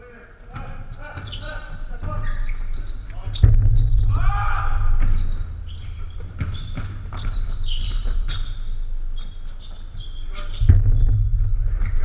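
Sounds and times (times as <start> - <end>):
basketball bouncing: 0.5 - 12.0
sneaker squeaks: 0.5 - 12.0
heavy low thump: 1.8 - 12.0
low rumble: 2.6 - 12.0.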